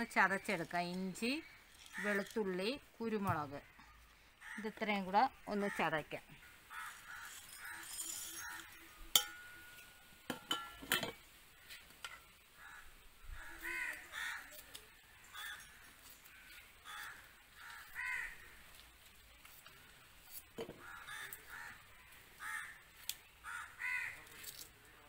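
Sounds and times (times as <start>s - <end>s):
crows cawing: 1.4s - 2.4s, 3.6s - 4.8s, 5.6s - 8.8s, 12.5s - 18.7s, 20.7s - 24.4s
clinks in a brass mortar: 7.2s - 11.2s.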